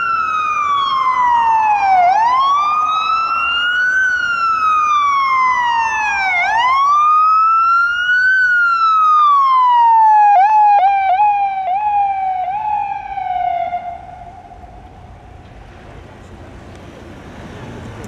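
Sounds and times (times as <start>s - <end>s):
emergency siren wailing: 0.0s - 15.4s.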